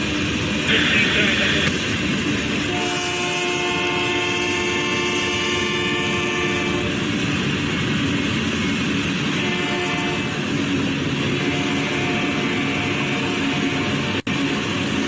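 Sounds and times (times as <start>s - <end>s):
freight train rolling past: 0.0s - 15.0s.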